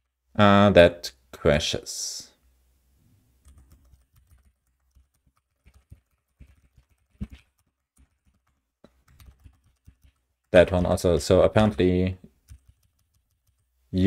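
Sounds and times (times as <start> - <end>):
typing on computer keyboard: 3.4 - 11.0, 12.4 - 13.7.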